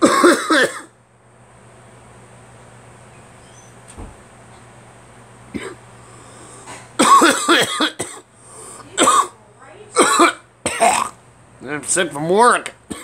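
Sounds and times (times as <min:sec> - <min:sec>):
man coughing: 0:00.0 - 0:00.9, 0:05.5 - 0:05.8, 0:07.0 - 0:08.2, 0:09.0 - 0:09.3, 0:10.0 - 0:11.2.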